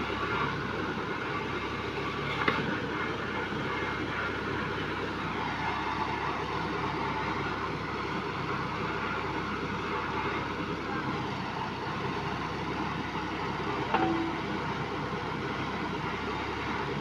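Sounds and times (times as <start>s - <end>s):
engine running: 0.0s - 17.0s
sharp knock: 13.9s - 14.5s.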